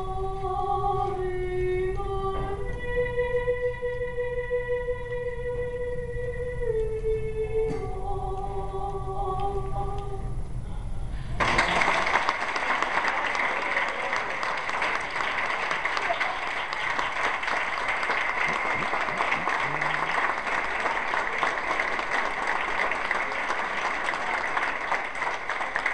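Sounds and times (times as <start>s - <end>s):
audience applauding: 11.4s - 25.9s.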